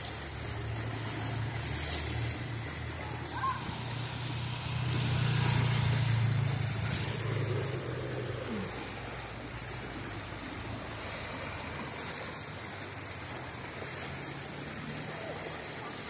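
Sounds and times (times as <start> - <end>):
rushing floodwater: 0.0 - 16.0
motorcycle engine running: 3.6 - 8.4.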